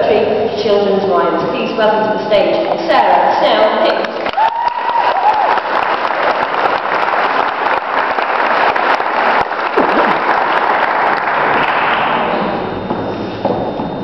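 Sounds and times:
audience applauding with echo: 0:04.0 - 0:12.3.

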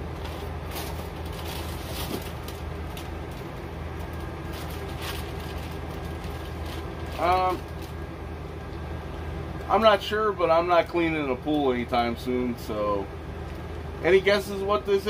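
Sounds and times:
steady low hum: 0:00.0 - 0:15.0
plastic packaging crinkling: 0:00.1 - 0:08.0.

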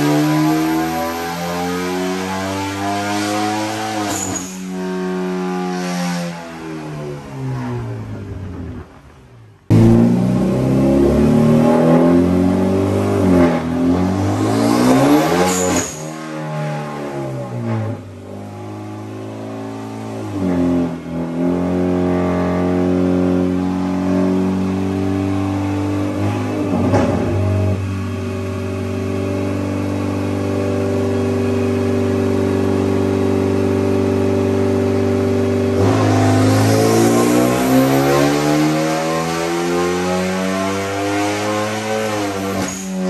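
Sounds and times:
car engine revving on dyno: 0:00.0 - 0:43.0.

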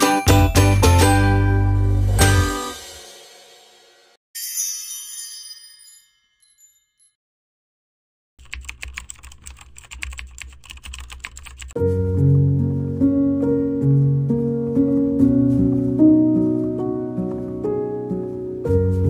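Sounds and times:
music with steady tones: 0:00.0 - 0:04.2
shimmering chime effect: 0:02.2 - 0:07.2
keyboard typing clicks: 0:08.4 - 0:11.8.

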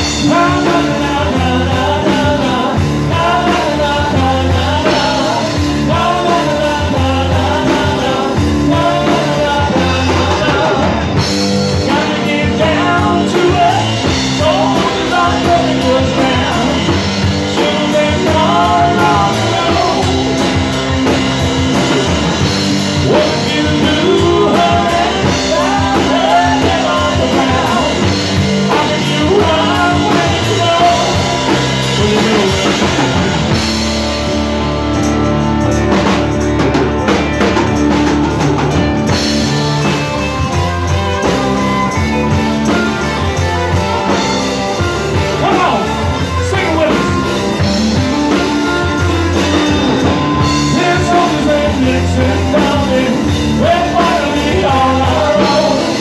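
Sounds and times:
lead vocalist singing: 0:00.0 - 0:34.2, 0:38.8 - 0:56.0
live rock band playing: 0:00.0 - 0:56.0.

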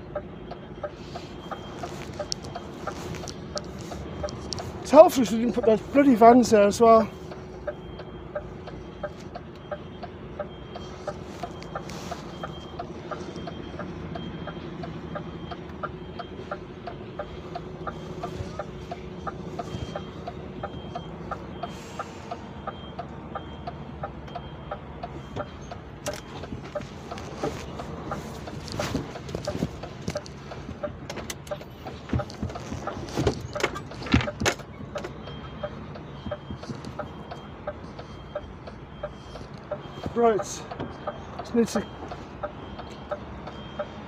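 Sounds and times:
sharp regular ticking: 0:00.0 - 0:33.0
diesel engine running low: 0:00.0 - 0:44.0.

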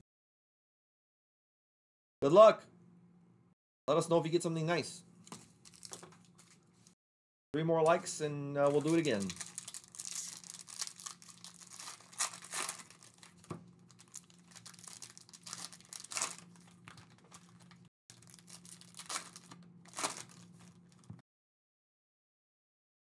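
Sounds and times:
foil wrappers tearing and crinkling: 0:05.5 - 0:06.7, 0:08.6 - 0:21.2.

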